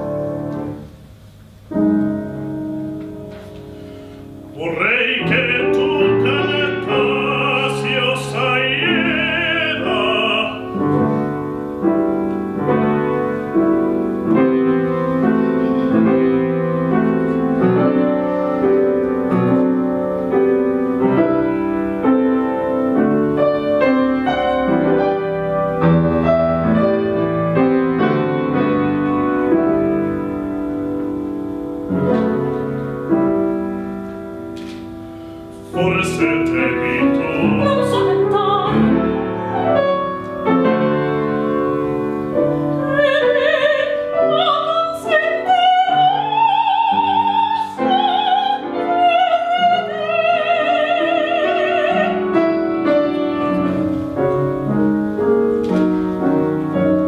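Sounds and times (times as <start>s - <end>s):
grand piano playing: 0.0s - 57.0s
opera singing with vibrato: 4.6s - 10.8s, 35.7s - 39.5s, 42.7s - 52.4s.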